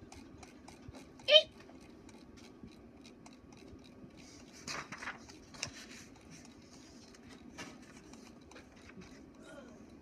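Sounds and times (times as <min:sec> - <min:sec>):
paper rustling in printer tray: 0:04.6 - 0:05.9.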